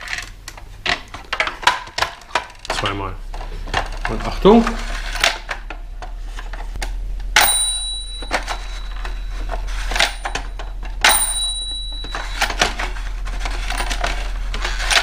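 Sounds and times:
toy cash register bell dinging: 7.4s - 12.8s.

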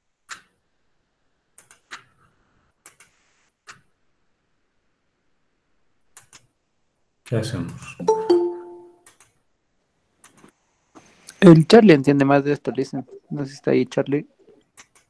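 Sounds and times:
computer mouse clicks: 0.3s - 0.5s, 1.6s - 2.1s, 2.8s - 3.9s, 6.1s - 6.5s, 9.0s - 9.4s, 10.2s - 10.5s, 14.8s - 15.0s.

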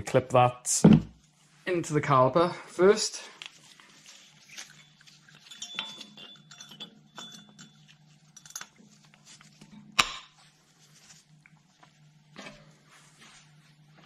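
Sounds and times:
metal clicks and clinks: 5.4s - 8.7s.

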